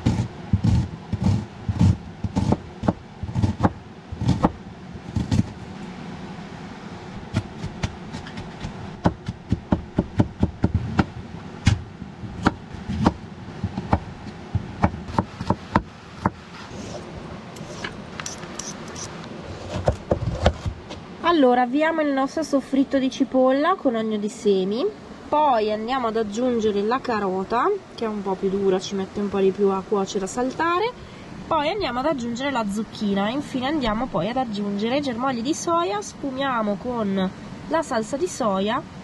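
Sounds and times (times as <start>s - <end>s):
knife chopping on plastic board: 0.0s - 4.6s.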